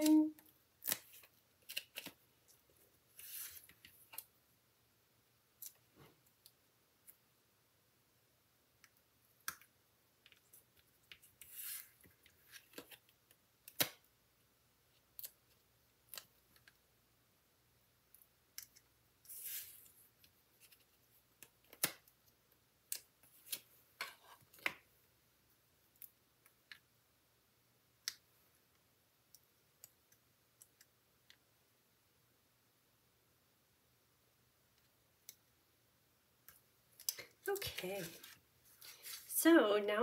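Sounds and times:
paper rustling: 0:37.2 - 0:39.3.

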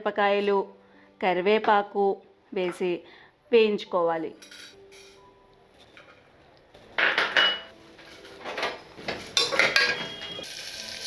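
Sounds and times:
spices sizzling in ghee: 0:09.3 - 0:11.0.

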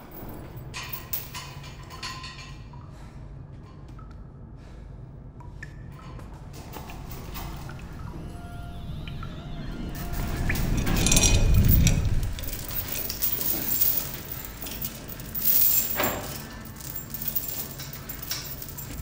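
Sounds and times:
heavy metal chains rattling: 0:00.0 - 0:02.5, 0:09.8 - 0:19.0.

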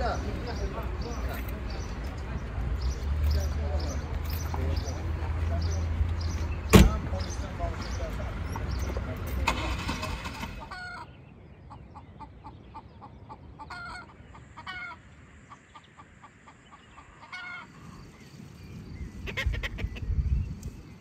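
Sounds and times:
chickens clucking: 0:09.6 - 0:18.1
chicken squawking: 0:10.2 - 0:11.1, 0:11.7 - 0:17.7, 0:19.2 - 0:20.1.

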